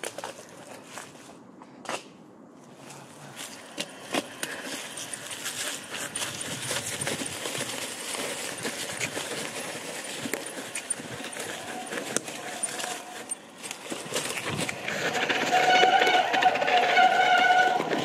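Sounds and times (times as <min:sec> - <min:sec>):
bike tyres rolling on dirt: 0:03.4 - 0:18.0
bike rattling and clicking: 0:03.5 - 0:18.0.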